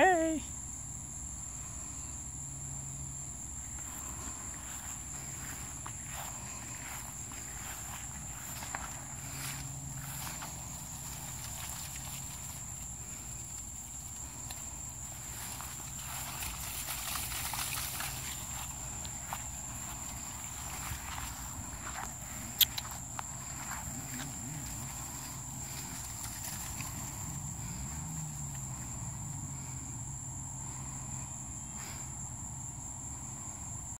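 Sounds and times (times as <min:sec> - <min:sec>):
high-pitched insect drone: 0:00.0 - 0:33.9
footsteps swishing through grass: 0:04.0 - 0:27.4.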